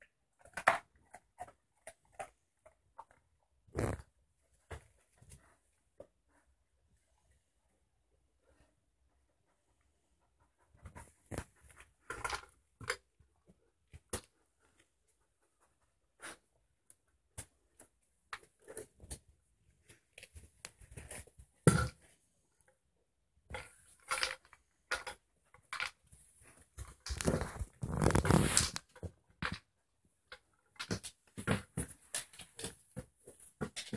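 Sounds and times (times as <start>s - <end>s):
rustling: 25.5s - 29.1s.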